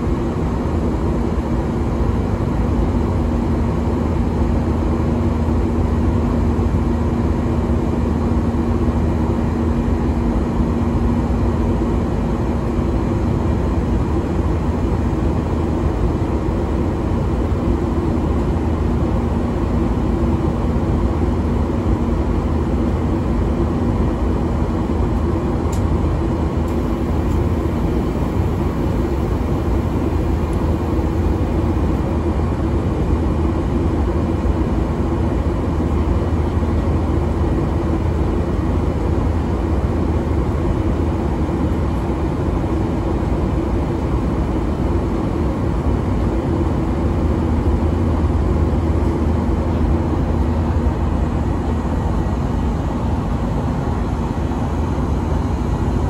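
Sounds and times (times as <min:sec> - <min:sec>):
jet engine drone: 0:00.0 - 0:56.0
steady low hum: 0:00.0 - 0:56.0
rushing airflow: 0:24.4 - 0:33.4.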